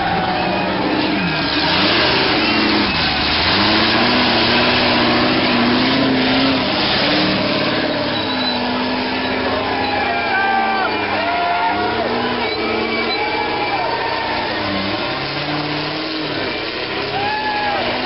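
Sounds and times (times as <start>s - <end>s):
buggy engine revving hard: 0.0s - 18.0s.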